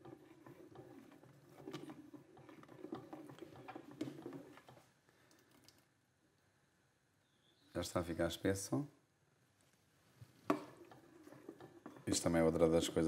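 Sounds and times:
spoon scraping a metal pot: 0.0 - 4.8, 10.5 - 13.0.

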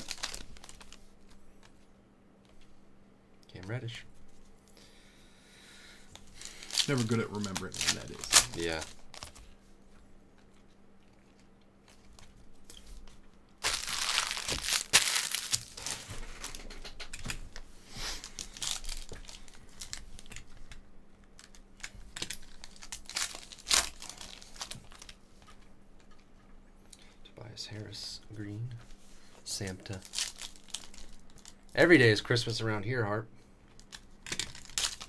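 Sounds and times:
foil wrapper crinkling and tearing: 0.0 - 1.1, 6.3 - 9.6, 11.8 - 16.7, 18.1 - 20.4, 21.3 - 25.2, 29.6 - 32.0, 33.8 - 35.0.

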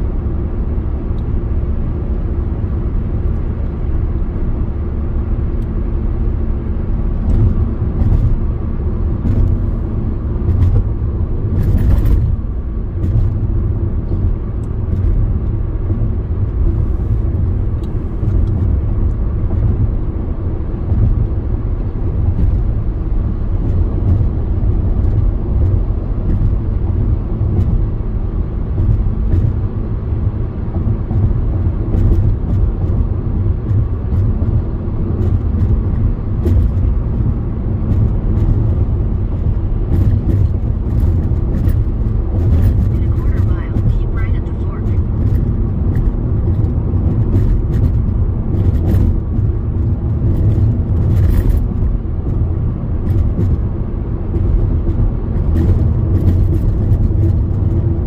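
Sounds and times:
car road and engine rumble: 0.0 - 58.0.

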